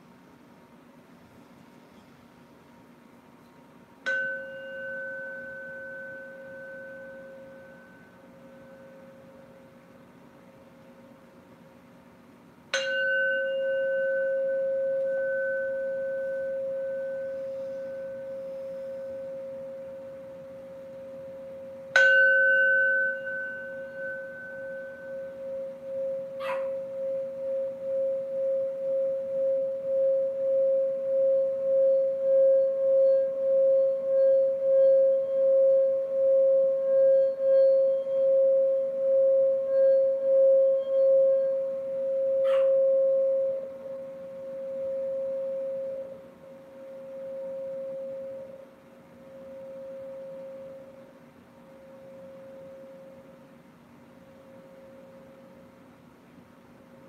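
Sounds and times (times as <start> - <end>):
mallet circling singing bowl rim: 3.4 - 9.8, 12.7 - 51.1
singing bowl struck with mallet: 4.0 - 9.7, 12.7 - 48.6.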